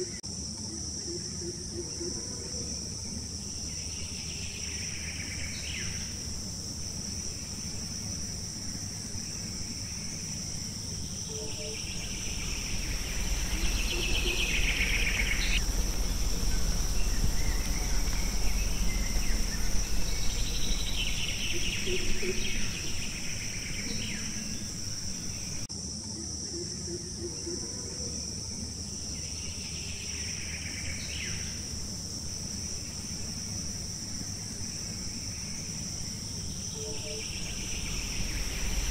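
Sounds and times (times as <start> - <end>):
high-pitched insect chorus: 0.0 - 38.9
rasping insect call: 0.0 - 38.9
low rumble: 9.2 - 25.7, 37.2 - 38.9.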